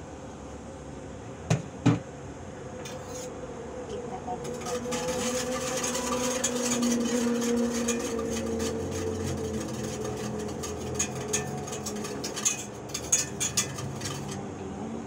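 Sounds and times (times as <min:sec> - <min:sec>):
faint steady hum: 0:00.0 - 0:15.0
whisk scraping a metal pot: 0:02.9 - 0:03.3, 0:04.4 - 0:14.4.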